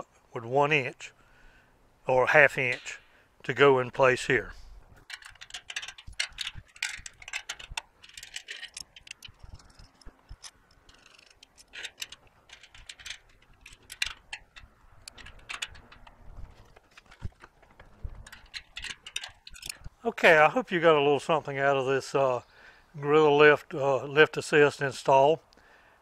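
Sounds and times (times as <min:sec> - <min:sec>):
wrench clicking on nut: 0:05.0 - 0:16.2.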